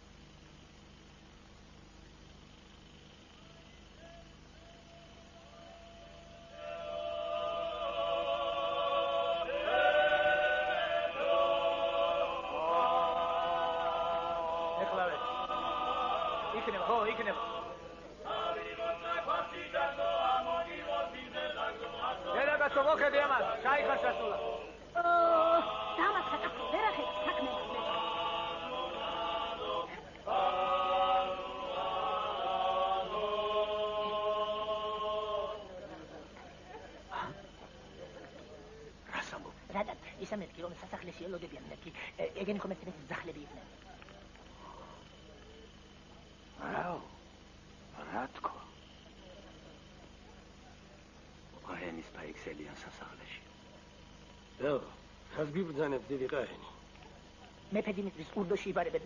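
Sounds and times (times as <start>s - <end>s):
choir chanting: 5.5s - 36.6s.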